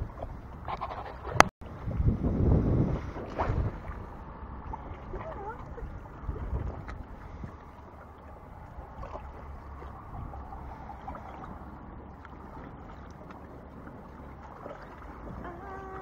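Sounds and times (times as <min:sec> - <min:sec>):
wind rumble on microphone: 0:00.0 - 0:16.0.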